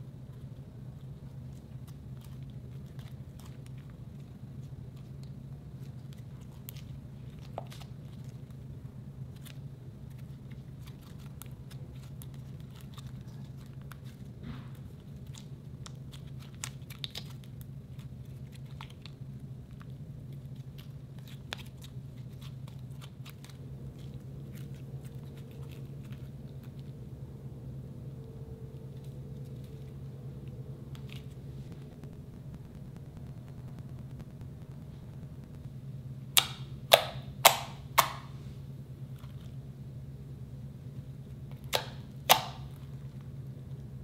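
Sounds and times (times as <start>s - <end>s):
low steady hum: 0.0s - 44.0s
slime clicking and popping: 36.4s - 38.3s, 41.5s - 42.8s.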